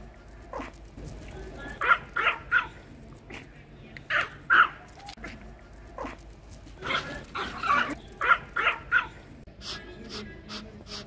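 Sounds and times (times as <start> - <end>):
dog barking: 1.8 - 2.8, 4.1 - 4.9, 6.8 - 9.2.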